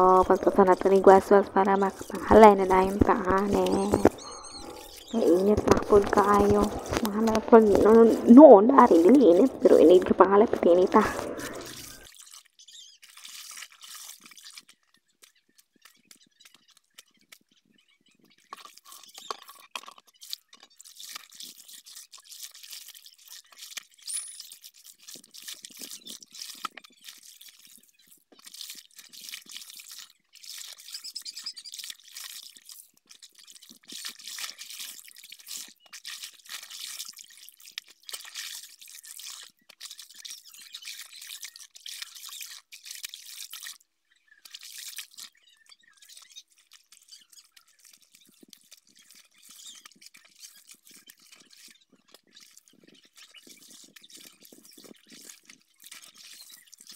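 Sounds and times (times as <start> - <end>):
water sloshing in basin: 0.0 - 12.1
water dripping into bucket: 0.0 - 12.4, 18.5 - 56.9.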